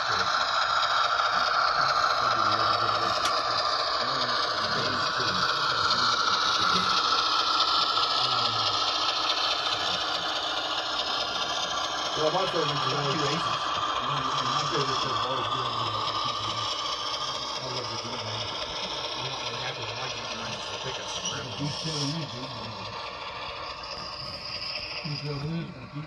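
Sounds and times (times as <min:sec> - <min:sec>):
model train running on track: 0:00.0 - 0:26.0.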